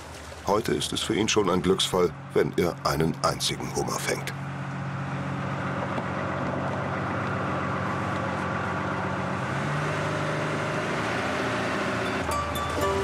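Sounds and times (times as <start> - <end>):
boat engine humming: 0.0 - 13.0.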